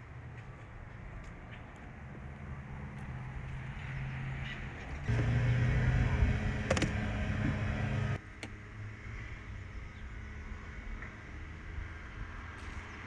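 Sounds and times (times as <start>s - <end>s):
street ambience: 0.0s - 13.0s
vehicle engine running: 5.1s - 8.2s.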